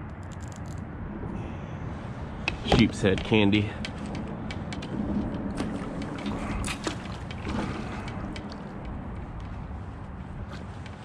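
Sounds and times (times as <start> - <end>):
low steady rumble: 0.0 - 11.0
water sloshing against kayak hull: 3.8 - 11.0.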